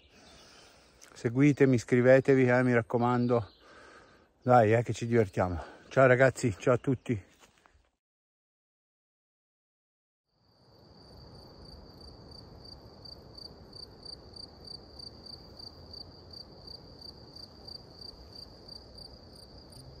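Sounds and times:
cricket chirping: 10.3 - 20.0.

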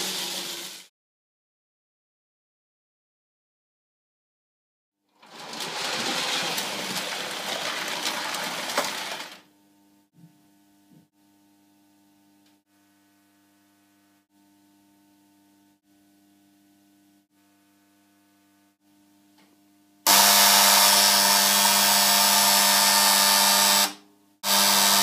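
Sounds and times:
toy train mechanical rattle: 0.0 - 0.9, 5.2 - 9.4.

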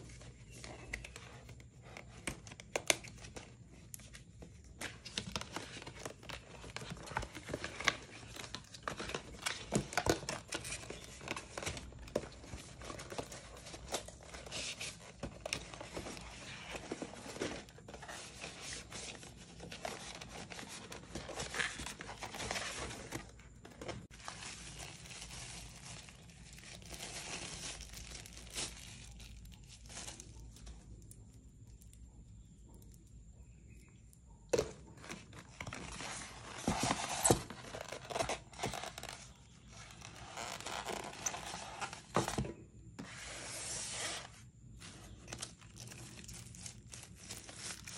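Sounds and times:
plastic wrap crinkling and tearing: 5.0 - 31.5, 35.0 - 42.0, 45.0 - 47.9
cardboard sliding and scraping: 40.5 - 45.2.

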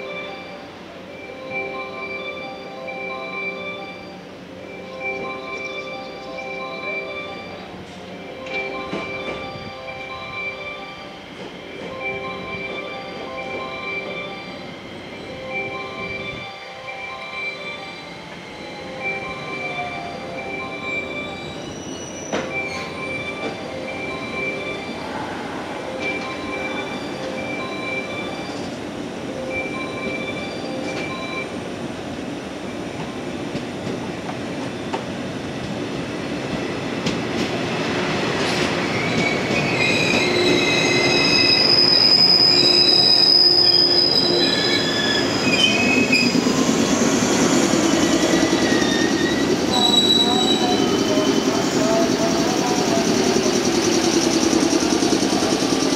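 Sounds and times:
train rumble: 4.2 - 55.9
train wheels squealing: 10.6 - 28.8, 36.1 - 55.9.

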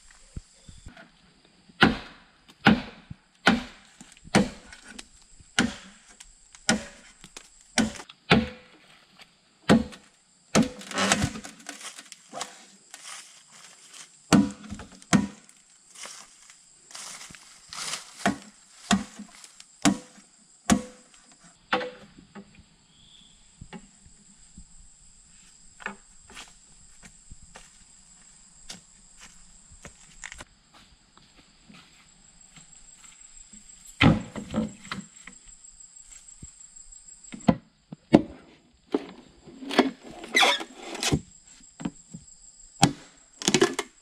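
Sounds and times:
insects droning: 0.0 - 44.0
machete chopping bamboo: 1.8 - 8.7, 9.7 - 12.6, 14.3 - 15.5, 17.8 - 21.1, 42.8 - 43.8
footsteps: 10.6 - 19.6, 25.3 - 34.0.

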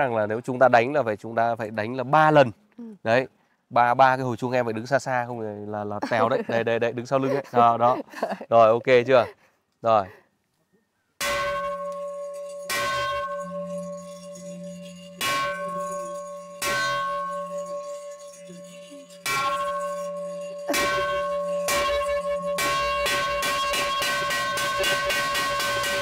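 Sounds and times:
bell struck by hand: 11.2 - 26.0.

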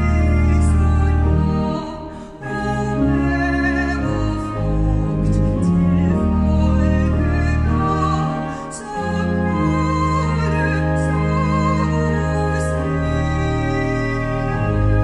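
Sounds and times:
church organ chords: 0.0 - 15.0
woman singing hymn operatically: 0.0 - 15.0.

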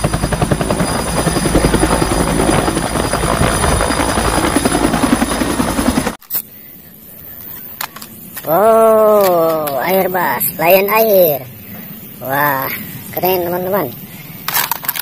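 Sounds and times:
helicopter rotor beating: 0.0 - 6.2, 12.2 - 14.0.

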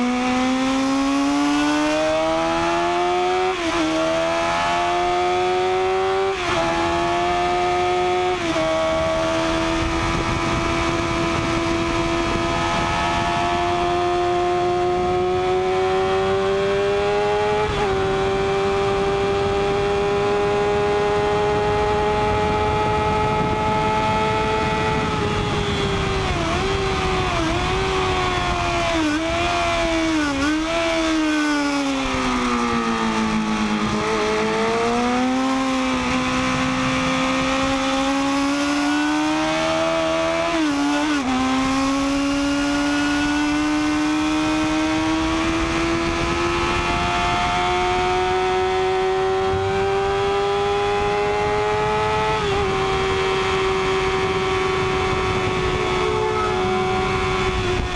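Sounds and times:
motorcycle engine revving: 0.0 - 57.9
wind rushing: 7.0 - 15.8, 20.9 - 38.6, 49.4 - 57.9.

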